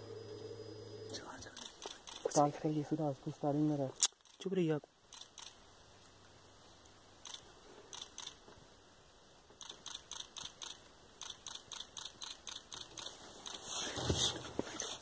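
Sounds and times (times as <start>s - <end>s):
camera shutters clicking: 1.6s - 2.4s, 5.1s - 5.6s, 7.2s - 8.4s, 9.6s - 13.6s.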